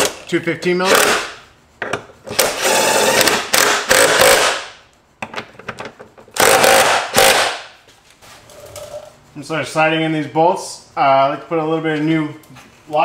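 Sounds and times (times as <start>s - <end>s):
cordless power tool driving bolts: 0.9s - 1.3s, 2.3s - 4.7s, 6.4s - 7.6s.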